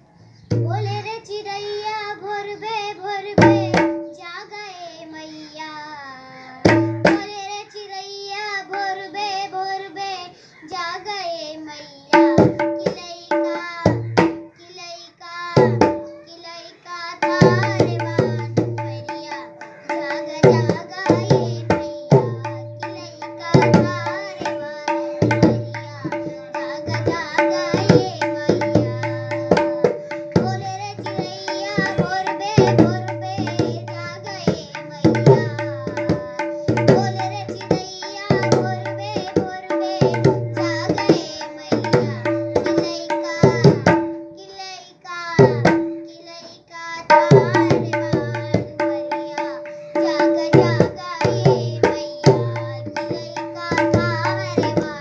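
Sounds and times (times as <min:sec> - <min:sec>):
girl singing devotional song: 0:00.0 - 0:55.0
tabla drumming: 0:00.5 - 0:01.1, 0:03.3 - 0:04.2, 0:06.6 - 0:07.4, 0:12.1 - 0:14.6, 0:15.6 - 0:16.2, 0:17.2 - 0:44.4, 0:45.4 - 0:46.4, 0:47.1 - 0:55.0.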